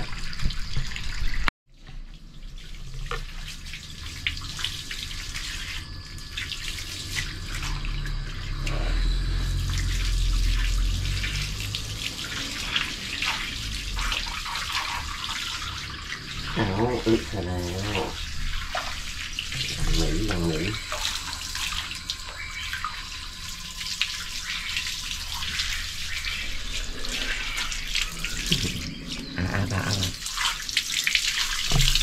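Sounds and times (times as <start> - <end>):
water splashing on concrete: 9.8 - 21.1, 24.0 - 32.0.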